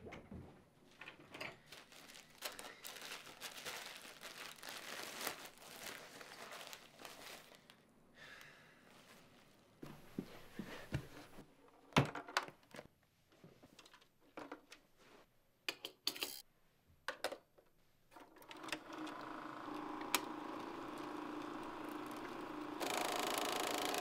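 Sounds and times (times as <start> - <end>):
plastic film reel clicking: 18.4 - 24.0
projector motor whirring: 18.7 - 24.0.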